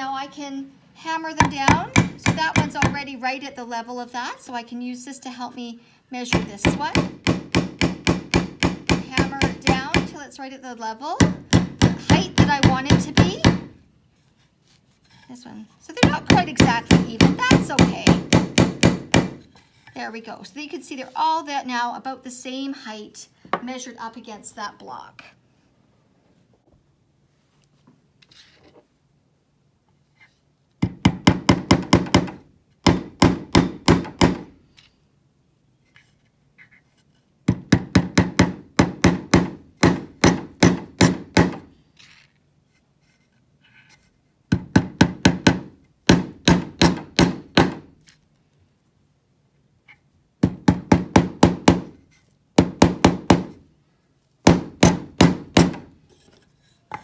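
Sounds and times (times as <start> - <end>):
hammer tapping nails into wood: 1.4 - 3.0, 6.4 - 10.1.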